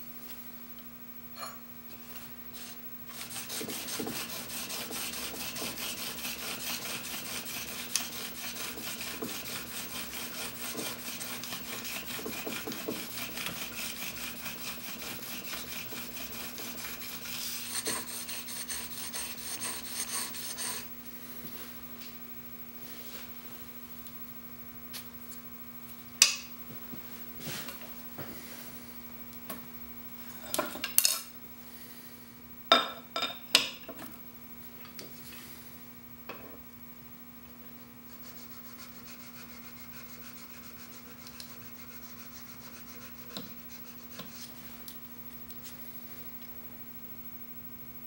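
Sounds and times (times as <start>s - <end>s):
chisel rasping on sharpening plate: 3.1s - 20.9s.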